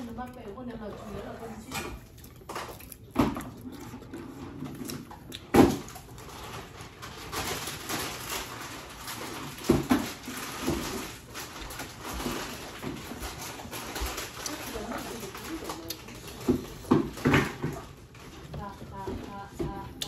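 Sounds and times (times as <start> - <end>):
plastic bag rustling: 0.0 - 19.9
chewing and lip smacks: 0.1 - 5.5.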